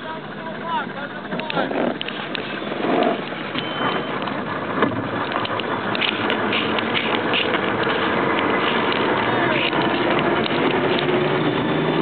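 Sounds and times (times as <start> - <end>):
rush of wind and water: 1.2 - 12.0
gear rattling on deck: 1.3 - 12.0.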